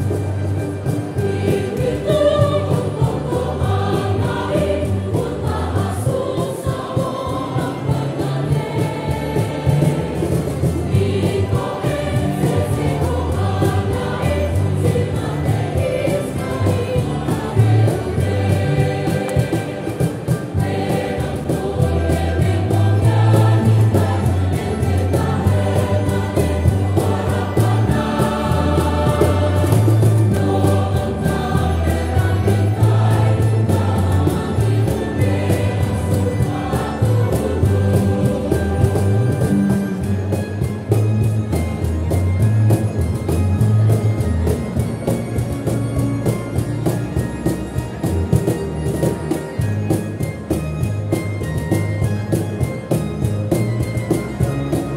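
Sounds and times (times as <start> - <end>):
choir singing a hymn: 0.0 - 40.9
instrumental bass accompaniment: 0.0 - 54.9.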